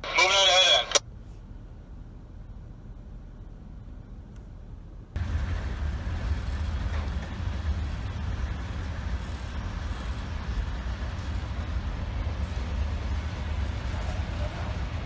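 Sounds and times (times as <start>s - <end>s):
train wheels rumbling on rails: 5.2s - 15.0s.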